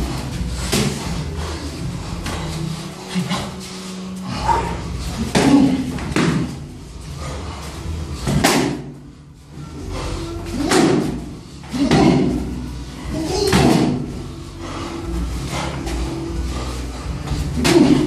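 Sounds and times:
kicks and punches smacking: 0:08.3 - 0:08.9.

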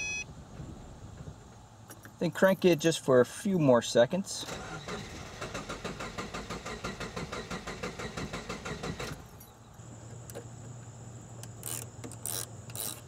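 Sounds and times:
car engine cranking: 0:04.4 - 0:09.3
wrench clicking on battery terminal: 0:11.4 - 0:13.0.

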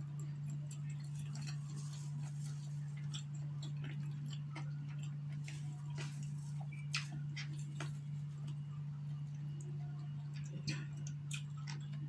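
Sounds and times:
person chewing food: 0:00.0 - 0:12.0.

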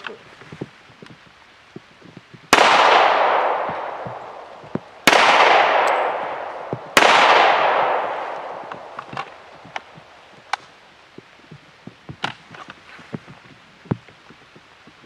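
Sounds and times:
pistol shots echoing: 0:02.5 - 0:10.2.

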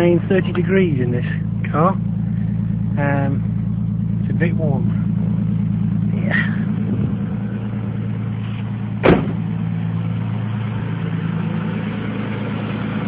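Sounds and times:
car engine idling: 0:00.0 - 0:13.0
car door shutting: 0:08.4 - 0:09.5.

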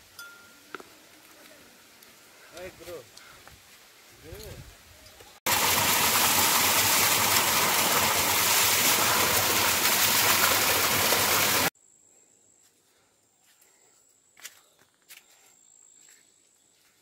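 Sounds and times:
water splashing onto stones: 0:05.5 - 0:11.7.

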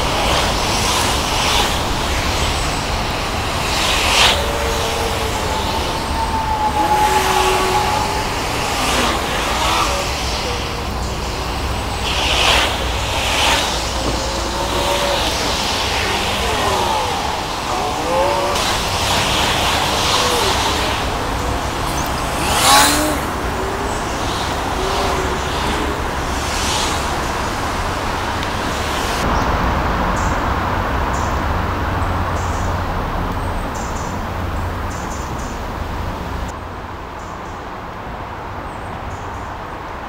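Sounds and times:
loud sharp sound: 0:00.0 - 0:29.6
passing cars: 0:00.0 - 0:37.3.

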